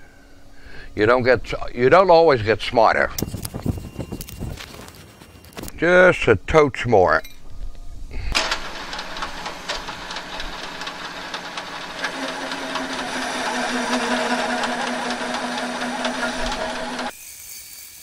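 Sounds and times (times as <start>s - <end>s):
fine ticking: 8.4s - 17.1s
metal lathe running: 8.4s - 17.1s
steady tone: 9.4s - 17.1s.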